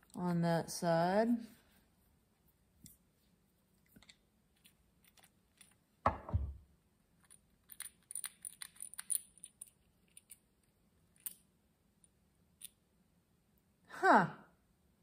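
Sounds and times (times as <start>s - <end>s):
small metal parts clicking: 4.0s - 5.8s, 7.2s - 11.4s.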